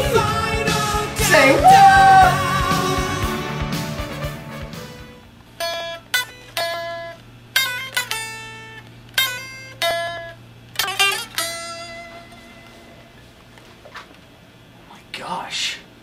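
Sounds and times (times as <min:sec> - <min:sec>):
faint steady hum: 0:04.9 - 0:16.0
electric guitar single notes: 0:05.6 - 0:13.3.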